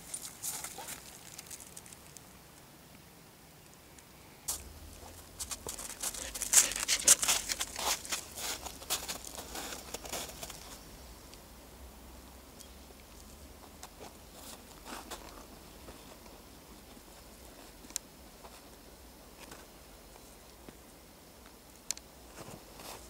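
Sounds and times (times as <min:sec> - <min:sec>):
crow pecking in crusted snow: 0:00.0 - 0:02.4, 0:04.5 - 0:11.4, 0:21.8 - 0:23.0.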